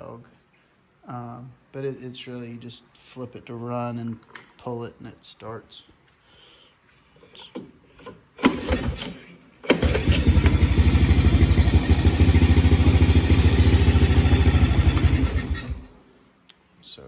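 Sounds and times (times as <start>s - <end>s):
starter cord pull: 8.4s - 10.6s
small engine puttering: 8.4s - 15.9s.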